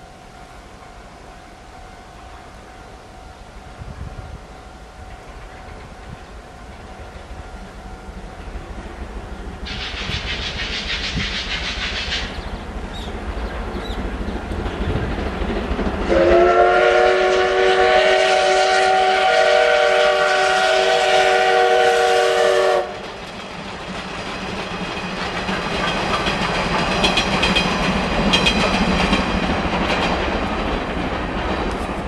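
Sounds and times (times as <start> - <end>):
steam train passing: 0.0 - 32.0
steam locomotive whistle: 16.0 - 23.1
wheels clicking over rail joints: 22.9 - 32.0.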